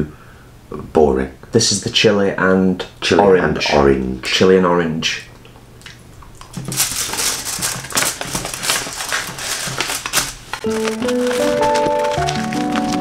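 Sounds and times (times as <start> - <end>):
foil wrapper crinkling: 6.4 - 13.0
background music: 10.6 - 13.0.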